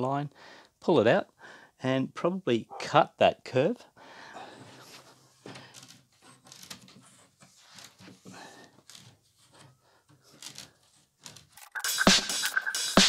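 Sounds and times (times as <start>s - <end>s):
music with heavy beat: 11.6s - 13.0s.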